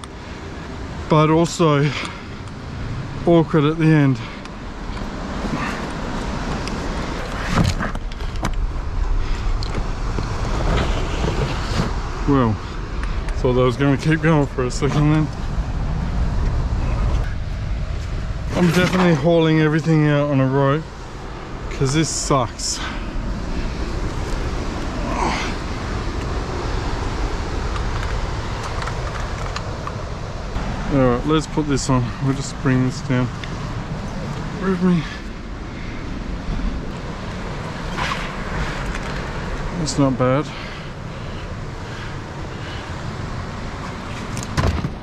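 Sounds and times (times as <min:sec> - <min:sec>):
ocean surf: 0:00.0 - 0:44.4
low outdoor rumble: 0:00.0 - 0:45.0
wind rushing: 0:04.6 - 0:40.2.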